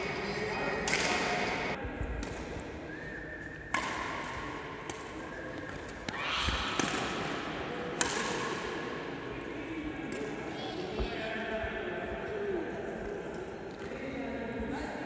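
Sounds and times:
rackets hitting shuttlecock: 0.8s - 2.7s, 3.7s - 8.9s.

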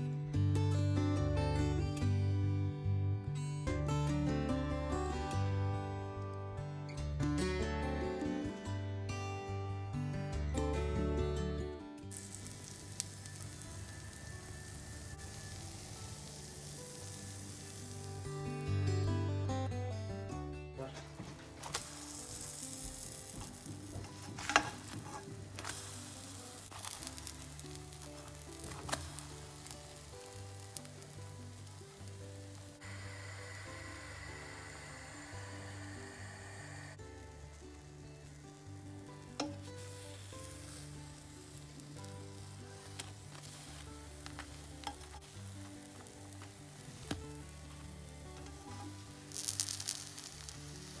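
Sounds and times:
soft background music: 0.0s - 51.0s
pancakes sizzling in a frying pan: 12.1s - 18.6s, 21.6s - 51.0s.

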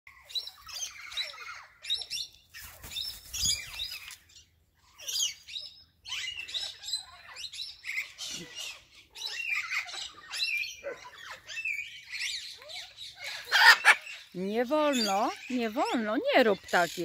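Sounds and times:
birds chirping and calling: 0.1s - 17.0s.

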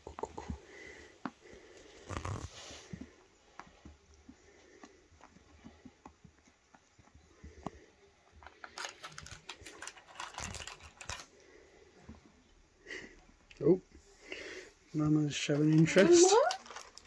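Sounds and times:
kittens scuffling on carpet: 0.4s - 12.4s.

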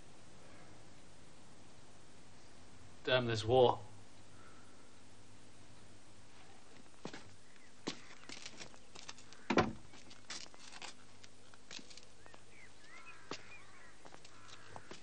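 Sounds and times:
birds chirping: 4.2s - 15.0s
footsteps on a doorstep: 6.3s - 15.0s.

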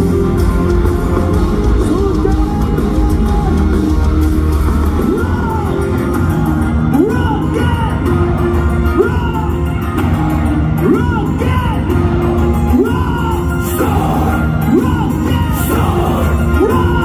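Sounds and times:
heavy metal band playing live: 0.0s - 17.0s.

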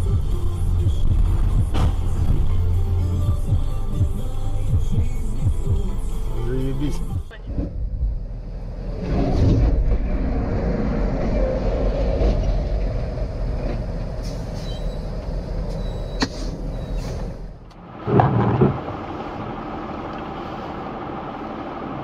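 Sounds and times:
heavy rumbling of trucks: 0.0s - 22.0s
truck crash: 7.4s - 14.9s, 15.9s - 19.8s.

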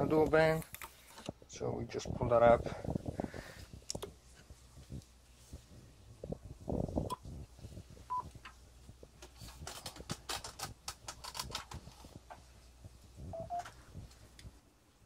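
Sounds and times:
electronic key beeps: 13.4s - 13.7s.

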